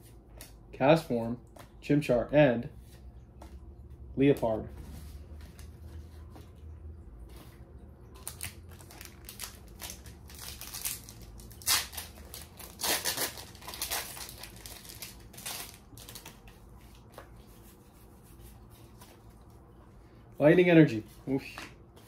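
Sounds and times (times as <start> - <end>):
foil wrapper crinkling and tearing: 8.1 - 16.6.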